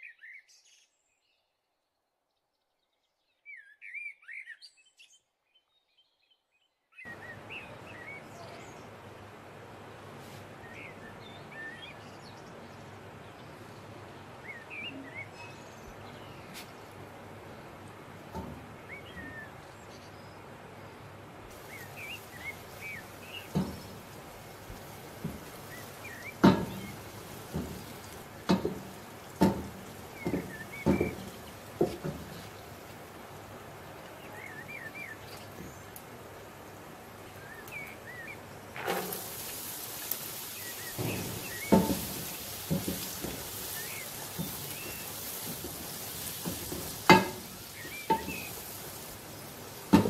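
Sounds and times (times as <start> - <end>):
birds chirping: 0.0 - 50.0
spatula knocking pan: 21.5 - 32.5, 40.9 - 48.9
eggs sizzling: 21.5 - 50.0.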